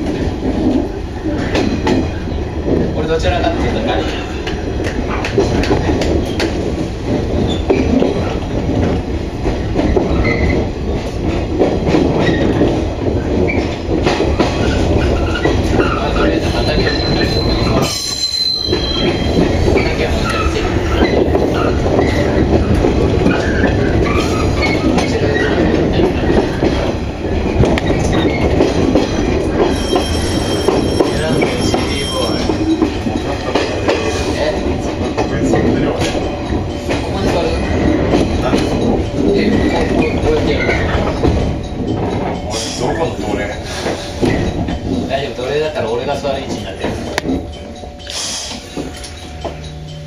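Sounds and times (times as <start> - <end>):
train wheels rumbling on rails: 0.0 - 50.0
high wheel squeal: 10.1 - 10.6, 14.6 - 22.4, 29.7 - 32.9.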